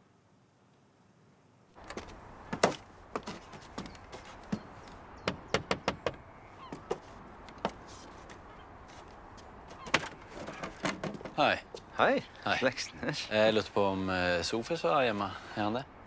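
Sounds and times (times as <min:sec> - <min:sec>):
steady background hiss: 0:00.0 - 0:16.0
knocking on door: 0:05.3 - 0:06.2.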